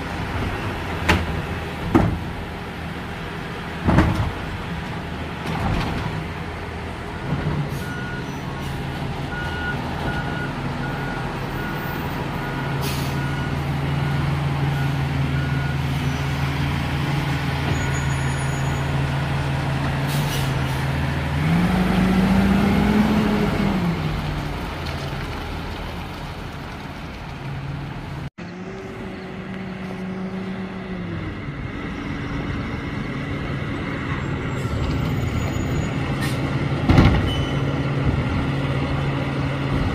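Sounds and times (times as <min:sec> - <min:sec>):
air brake hisses: 0:12.8 - 0:13.2
garbage truck diesel engine revving: 0:18.8 - 0:24.7.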